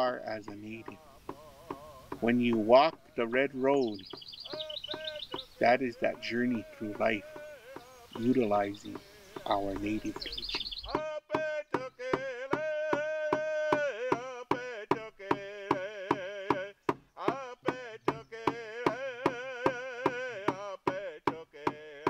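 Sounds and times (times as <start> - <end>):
steady drum beat: 0.0 - 21.4.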